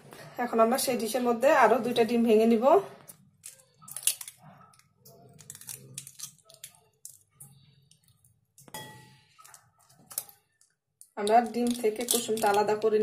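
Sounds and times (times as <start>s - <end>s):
egg cracking: 3.0s - 13.0s.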